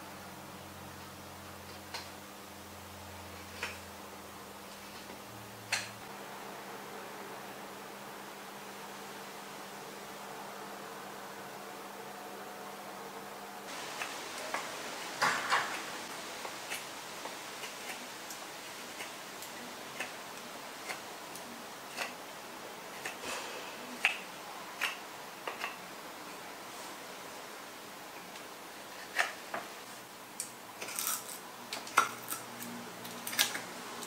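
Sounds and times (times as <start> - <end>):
faint steady hum: 0.0 - 34.0
knife carving wood: 3.2 - 3.9, 15.3 - 22.2, 22.9 - 23.3, 24.0 - 25.8.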